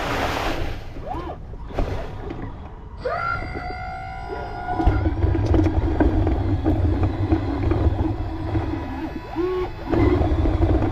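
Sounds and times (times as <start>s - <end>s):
low rumble of model machines: 1.0s - 10.9s
electric motor whine: 4.9s - 10.9s.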